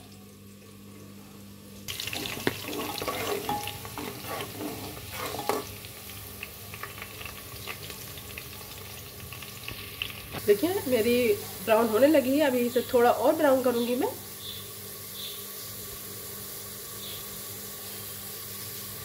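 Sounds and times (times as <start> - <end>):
onions sizzling in hot oil: 1.8 - 19.0
metal spatula scraping pot: 2.1 - 5.8.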